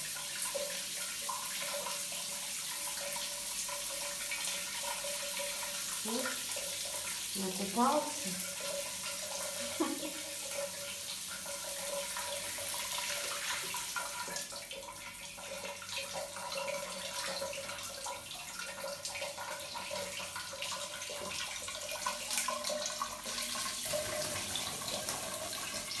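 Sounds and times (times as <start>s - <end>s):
tap water running: 0.0s - 26.0s.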